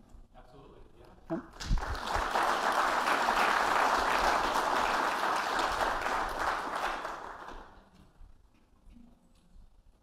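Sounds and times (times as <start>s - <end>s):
audience applauding: 1.6s - 7.8s.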